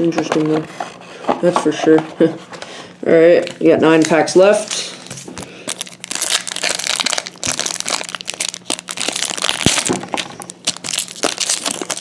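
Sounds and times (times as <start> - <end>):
foil wrapper crinkling: 3.9 - 12.0.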